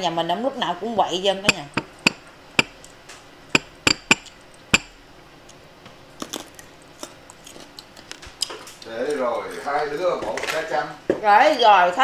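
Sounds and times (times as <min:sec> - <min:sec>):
sharp clicks of eating: 0:06.2 - 0:09.3.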